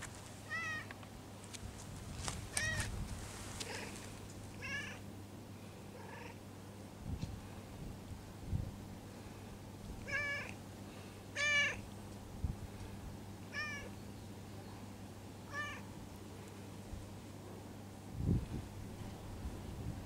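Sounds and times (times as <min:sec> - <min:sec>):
cat meowing quietly: 0:00.4 - 0:00.9, 0:04.6 - 0:05.0, 0:06.0 - 0:06.4, 0:10.0 - 0:10.6, 0:11.4 - 0:11.8.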